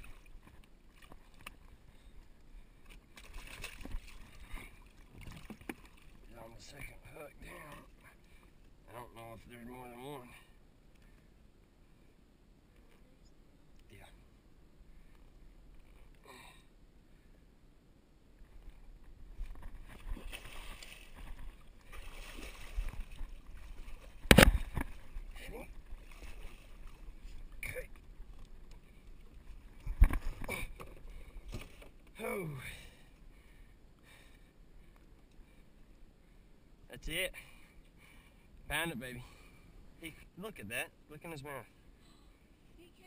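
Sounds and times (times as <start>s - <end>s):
water lapping at boat: 0.0s - 13.1s, 18.3s - 36.6s
fish thrashing and splashing: 3.1s - 6.2s, 19.5s - 27.1s.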